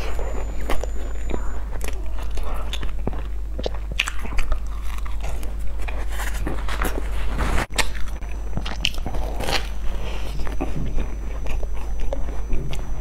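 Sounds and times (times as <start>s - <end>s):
chewing bread: 0.0s - 13.0s.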